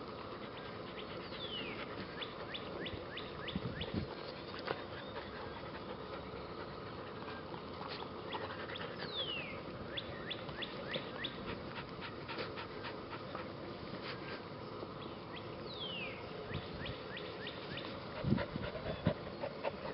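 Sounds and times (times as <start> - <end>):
puppy panting: 0.0 - 3.1, 4.1 - 9.6, 10.9 - 14.4, 17.8 - 19.9.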